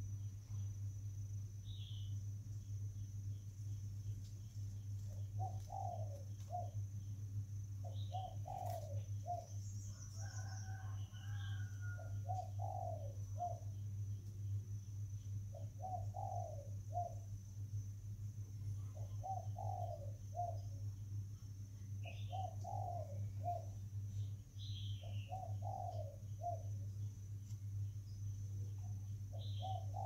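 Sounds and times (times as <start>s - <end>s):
steady low hum: 0.0s - 30.0s
bird chirps: 1.6s - 2.2s, 3.7s - 6.8s, 7.8s - 14.6s, 15.2s - 17.3s, 18.8s - 20.8s, 22.0s - 27.1s, 27.8s - 30.0s
dove cooing: 5.0s - 6.8s, 7.8s - 13.7s, 15.5s - 17.3s, 18.8s - 20.8s, 22.0s - 23.8s, 25.0s - 26.8s, 28.8s - 30.0s.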